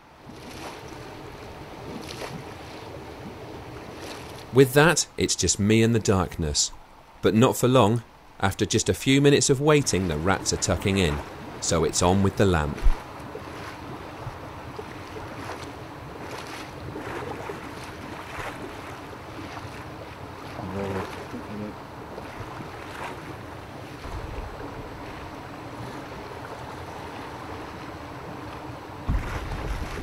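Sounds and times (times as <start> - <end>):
wind gusts buffeting microphone: 9.4 - 30.0.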